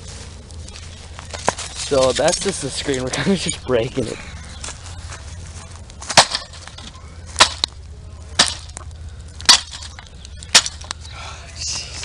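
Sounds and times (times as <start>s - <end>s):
low steady rumble: 0.0s - 12.0s
sharp cracks of screen breaking: 6.1s - 7.7s, 8.4s - 8.8s, 9.4s - 10.9s.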